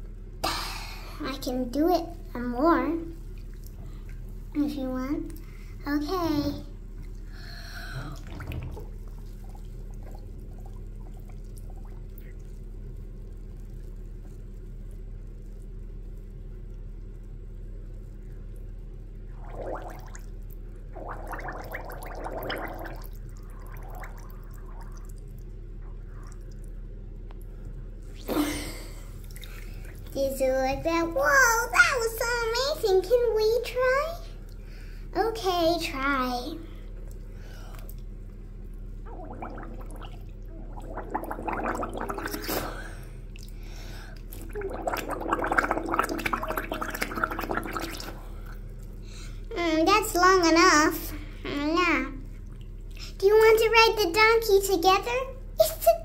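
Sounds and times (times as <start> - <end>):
bath water bubbling and gurgling: 0.0 - 56.0
steady low hum: 0.0 - 56.0
person gargling bubbling noises: 7.9 - 12.3, 19.3 - 20.2, 20.9 - 25.2, 28.1 - 29.6, 39.0 - 43.5, 44.2 - 48.5.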